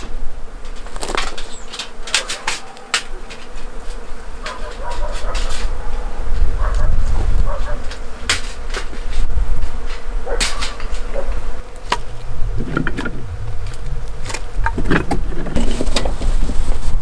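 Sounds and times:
flying insect buzzing: 0:00.0 - 0:17.0
sharp clicks and knocks: 0:11.8 - 0:16.2.

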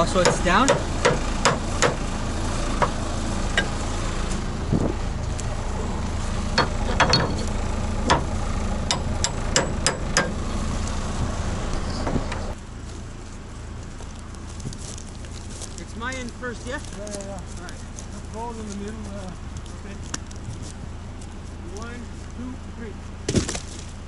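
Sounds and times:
tracked vehicle engine idling: 0:00.0 - 0:24.0
hammer clanking on metal track: 0:06.6 - 0:07.5.

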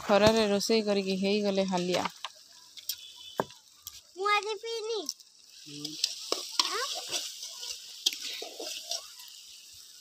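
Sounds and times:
fish sizzling in wok: 0:00.0 - 0:10.0
metal spatula scraping pan: 0:05.8 - 0:09.4.

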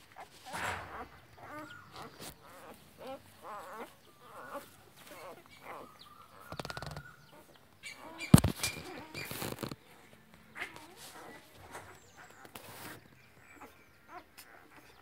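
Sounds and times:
puppies whimpering and squeaking: 0:00.8 - 0:15.0
quick clicks: 0:06.5 - 0:07.1.

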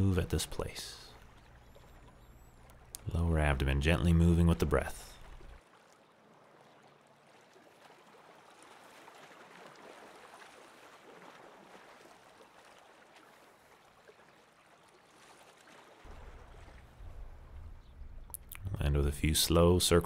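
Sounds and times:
lake water lapping on rocks: 0:01.1 - 0:03.1, 0:05.0 - 0:18.6.

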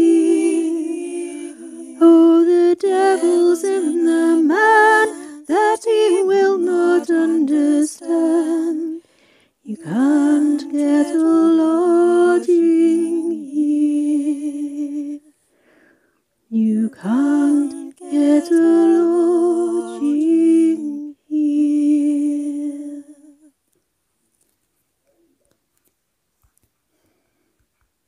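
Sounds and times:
women singing in harmony: 0:00.0 - 0:15.3, 0:16.5 - 0:23.5.

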